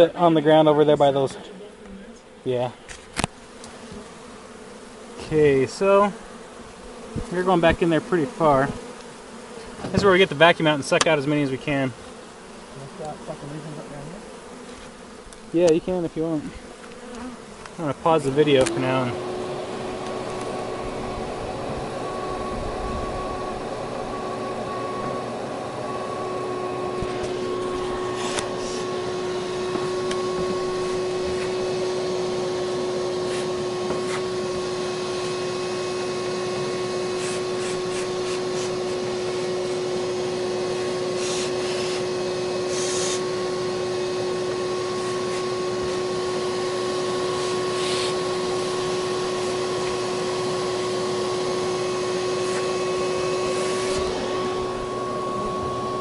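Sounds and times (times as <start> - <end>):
vacuum motor whining: 15.3 - 56.0
short sharp ticks and hisses: 41.2 - 42.0, 47.8 - 48.2.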